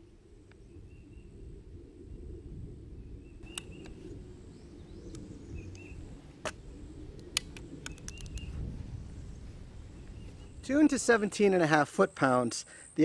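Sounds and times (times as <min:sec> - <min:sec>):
faint bird chirps: 0:00.5 - 0:01.5, 0:03.0 - 0:06.1
sharp clicks: 0:03.4 - 0:04.0, 0:07.2 - 0:08.5.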